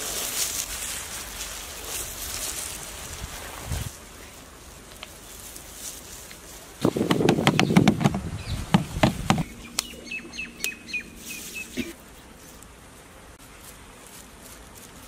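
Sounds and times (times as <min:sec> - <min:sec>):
gloved hands rustling in coating mix: 0:00.0 - 0:15.0
sharp tap: 0:06.8 - 0:09.9
bird chirping: 0:06.9 - 0:11.9.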